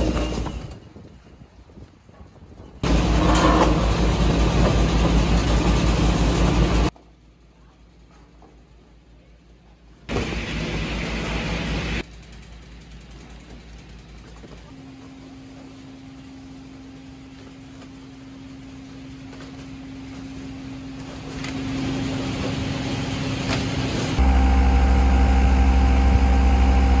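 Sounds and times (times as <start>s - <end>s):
harvester engine rumbling: 2.6s - 6.9s, 9.8s - 27.0s
machinery humming: 2.8s - 6.9s, 9.9s - 27.0s.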